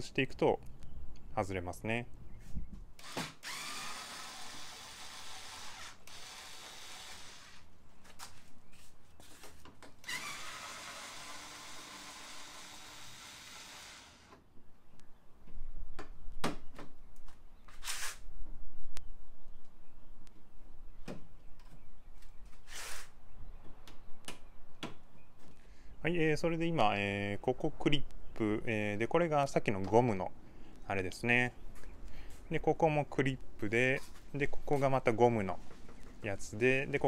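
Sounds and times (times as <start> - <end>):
electric screwdriver whining: 3.0 - 7.6, 10.0 - 14.4.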